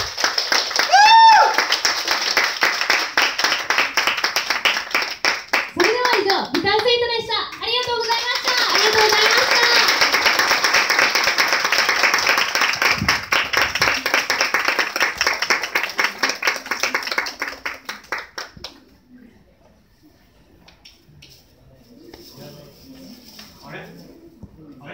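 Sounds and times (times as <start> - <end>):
audience applauding: 0.0 - 6.3, 8.0 - 18.8.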